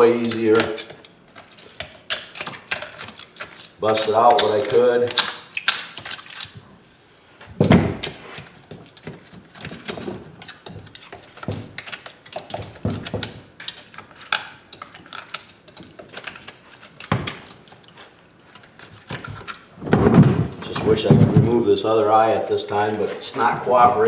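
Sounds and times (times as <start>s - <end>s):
knife scraping bone: 0.0s - 6.6s, 8.0s - 19.7s
heavy thumps: 19.8s - 21.7s, 23.4s - 24.0s.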